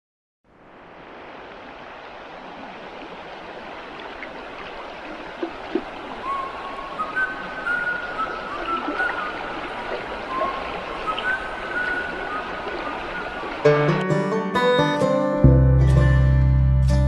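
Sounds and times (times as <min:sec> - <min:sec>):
running water rushing: 0:00.5 - 0:14.1
high whistling tones: 0:06.2 - 0:09.4, 0:10.2 - 0:13.2.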